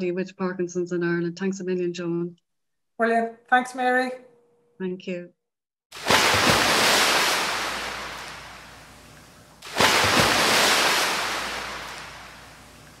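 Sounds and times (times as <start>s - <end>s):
waves breaking on shore: 6.0s - 13.0s.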